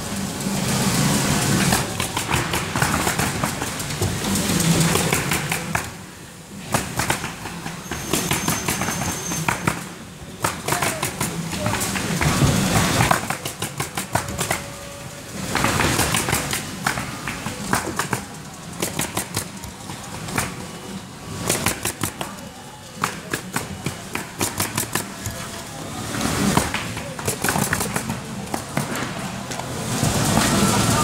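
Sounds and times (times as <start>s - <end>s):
pneumatic nailer driving nails: 6.7s - 14.7s, 23.0s - 25.4s.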